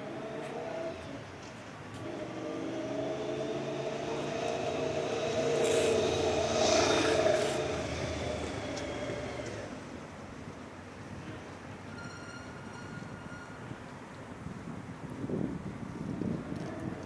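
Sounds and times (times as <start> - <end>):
large vehicle motor hum: 0.0 - 10.6
vehicle whine: 0.0 - 14.0.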